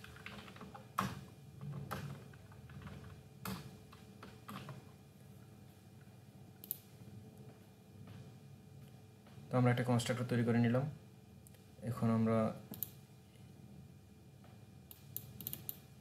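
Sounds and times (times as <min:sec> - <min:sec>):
computer keyboard typing: 0:00.0 - 0:01.1, 0:01.7 - 0:04.7, 0:14.9 - 0:15.8.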